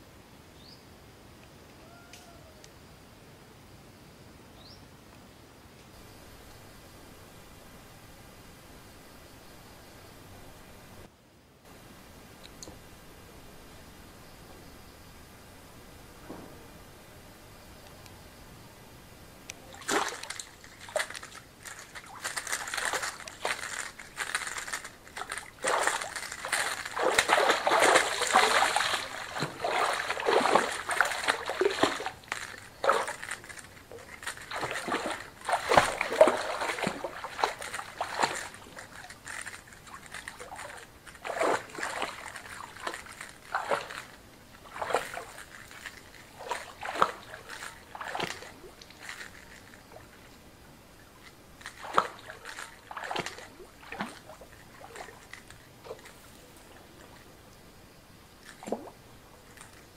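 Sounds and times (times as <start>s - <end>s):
water splashing from thrashing fish: 19.7s - 48.7s, 51.8s - 55.2s.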